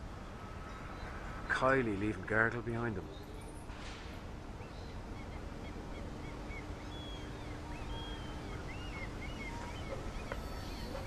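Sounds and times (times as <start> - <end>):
faint steady hum: 0.0 - 11.0
bird chirps: 4.6 - 11.0.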